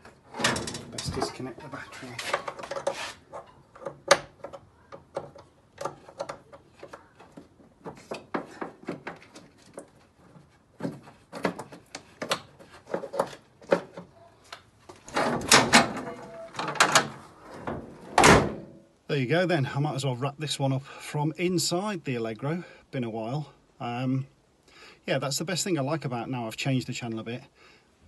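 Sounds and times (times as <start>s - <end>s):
rustling: 0.0s - 4.6s.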